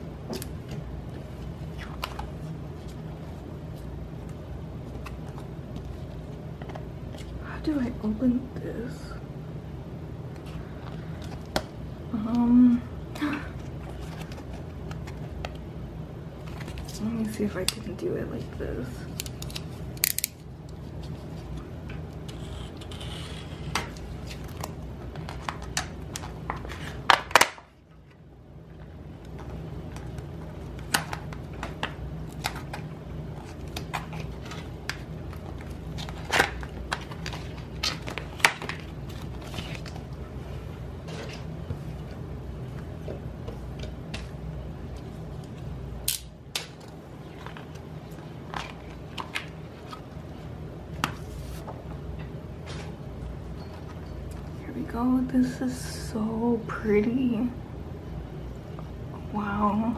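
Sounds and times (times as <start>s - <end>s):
steady low hum: 0.0s - 59.9s
packaging clicks and crinkles: 30.0s - 40.2s.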